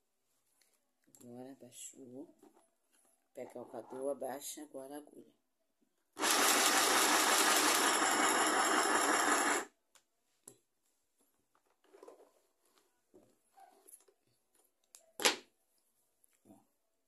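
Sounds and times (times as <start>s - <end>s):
electric sewing machine running: 6.2s - 9.7s.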